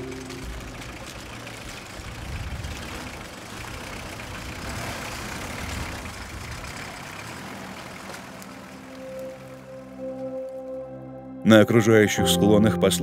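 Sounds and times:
off-road vehicle engine running: 0:00.0 - 0:10.0
water splashing under wheels: 0:00.0 - 0:10.6.

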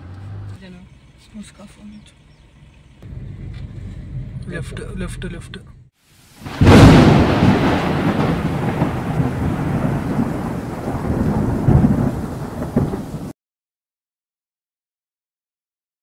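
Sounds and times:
thunder-like rumble with hiss: 0:06.4 - 0:13.3
loud boom: 0:06.5 - 0:13.1.

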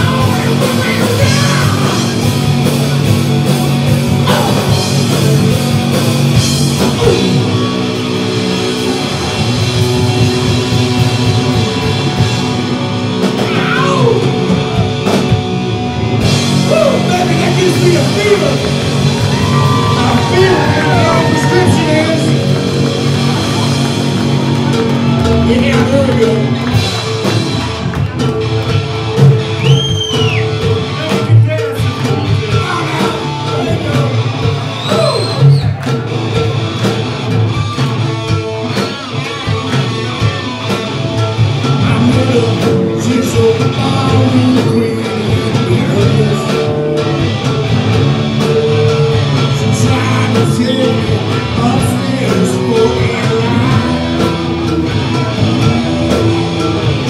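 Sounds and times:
bass guitar: 0:00.0 - 0:57.0
drum kit: 0:00.0 - 0:57.0
electric guitars: 0:00.0 - 0:57.0
lead singer singing: 0:16.6 - 0:22.6, 0:41.8 - 0:47.2, 0:48.6 - 0:54.4.

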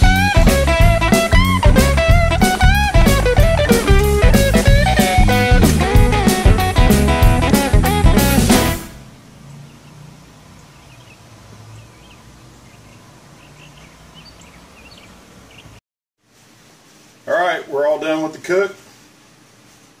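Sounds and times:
blues-rock music: 0:00.0 - 0:09.0.

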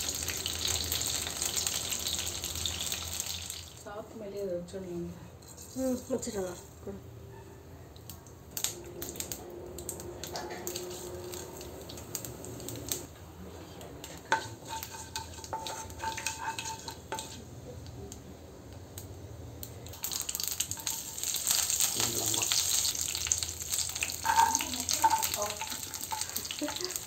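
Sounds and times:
loud oil sizzle: 0:00.0 - 0:04.1, 0:08.0 - 0:27.0
spatula scraping in pan: 0:05.4 - 0:06.8, 0:10.4 - 0:12.1, 0:14.0 - 0:17.6, 0:20.0 - 0:27.0.

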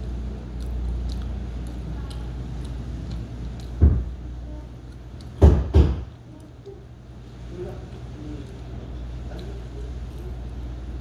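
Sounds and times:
person chewing: 0:00.0 - 0:05.4, 0:06.2 - 0:11.0
steady low hum: 0:00.0 - 0:11.0.

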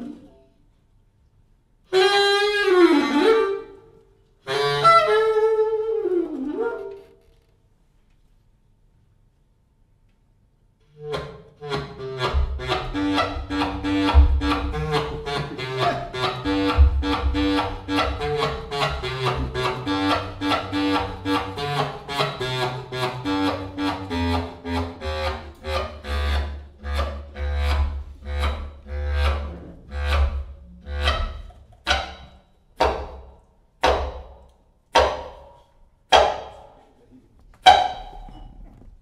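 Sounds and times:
clarinet quartet playing jazz: 0:04.5 - 0:07.0, 0:11.1 - 0:31.4.

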